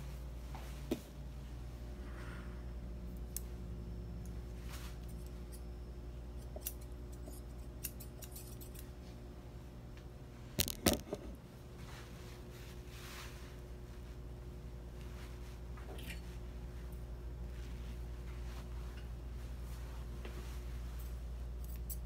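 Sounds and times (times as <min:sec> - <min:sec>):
low steady hum: 0:00.0 - 0:22.0
metal shears clicking: 0:06.4 - 0:08.9.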